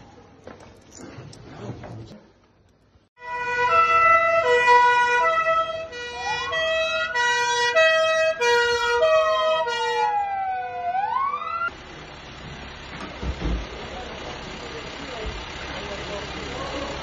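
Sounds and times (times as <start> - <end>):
wailing police siren: 3.2 - 11.7
two-tone police siren: 3.2 - 11.8.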